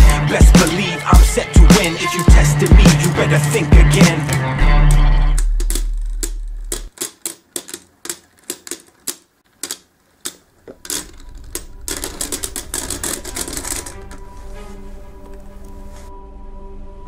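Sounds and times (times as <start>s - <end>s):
plastic spinning tops clashing: 0.0s - 15.8s.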